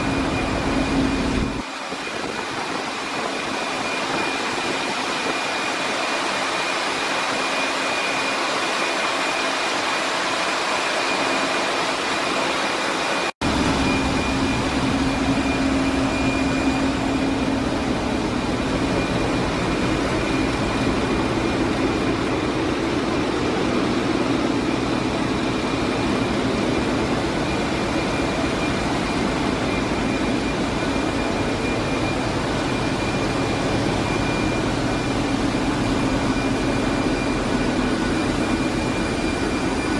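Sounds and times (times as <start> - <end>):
deep steady hum: 0.0 - 1.6, 13.4 - 39.9
ship engines running: 0.0 - 39.9
thin high whine: 0.0 - 39.9.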